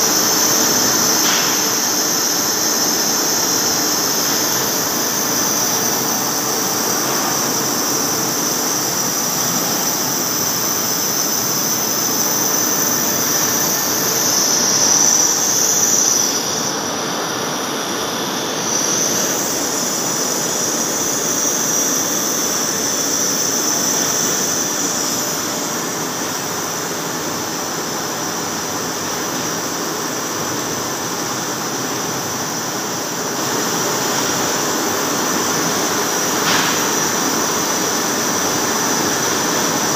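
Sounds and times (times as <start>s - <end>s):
lathe cutting metal: 0.1s - 26.6s.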